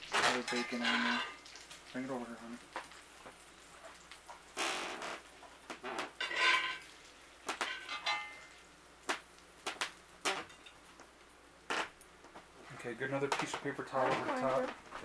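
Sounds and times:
bacon sizzling in pan: 0.0s - 12.2s
metal tongs clinking on skillet: 0.4s - 1.4s, 7.6s - 8.5s, 10.4s - 10.8s.

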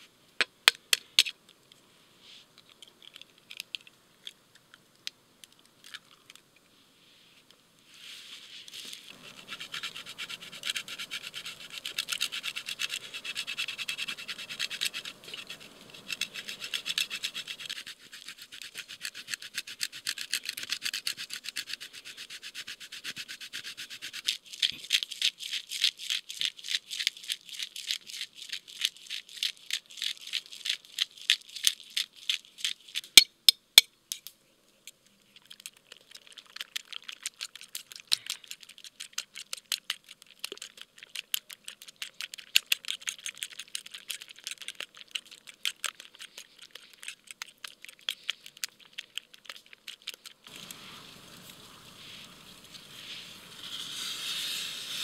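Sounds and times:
pepper grinder grinding: 9.1s - 21.8s, 35.4s - 50.8s
fork beating eggs in a bowl: 9.1s - 25.0s, 35.6s - 50.8s
cheese being grated: 9.1s - 25.9s.

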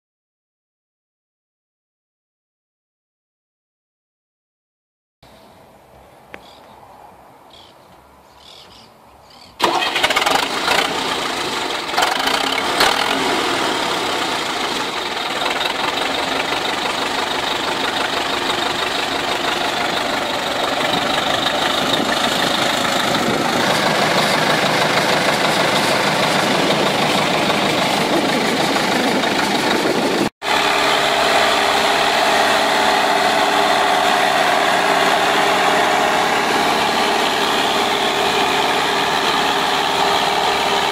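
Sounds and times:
tractor diesel engine under load: 9.6s - 40.9s.

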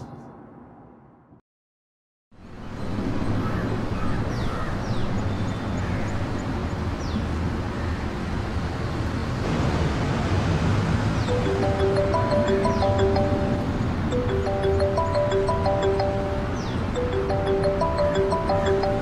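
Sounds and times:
low traffic rumble: 2.4s - 19.0s
birds chirping: 11.2s - 19.0s.

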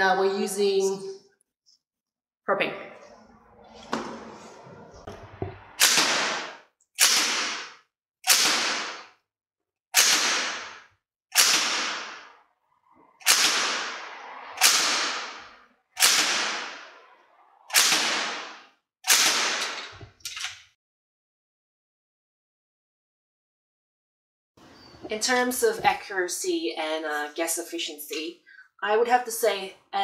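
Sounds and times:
airsoft gun shots: 5.8s - 9.2s, 10.0s - 12.4s, 13.2s - 15.4s, 16.0s - 16.9s, 17.7s - 19.8s.

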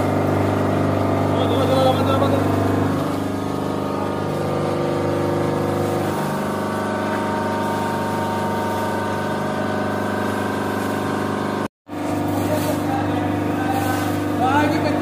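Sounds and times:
hydraulic power pack humming: 0.0s - 15.0s.

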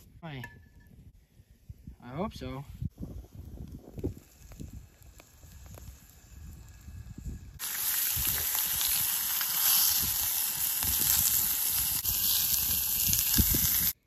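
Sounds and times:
sausage sizzling in oil: 3.3s - 14.0s.

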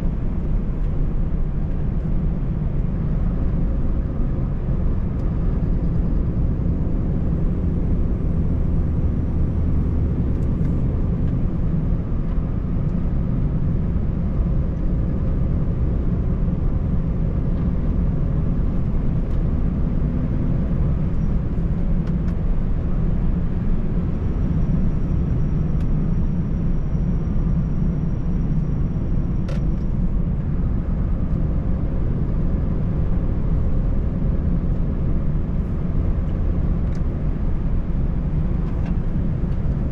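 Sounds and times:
truck diesel engine drone: 0.0s - 39.9s.

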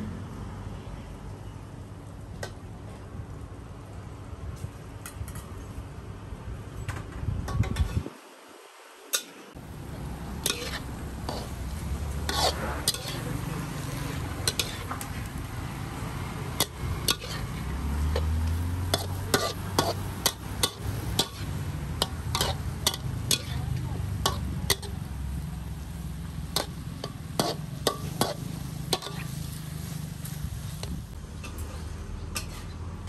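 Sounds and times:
faint sizzle of frying: 9.1s - 32.8s
metal ladle scraping a wok: 10.3s - 25.0s, 25.7s - 32.8s.

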